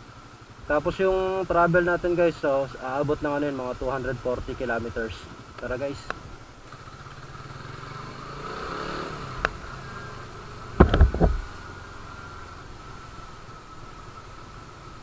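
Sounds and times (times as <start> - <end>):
motorcycle engine running: 0.0 - 15.0
loud thumps: 10.8 - 11.5.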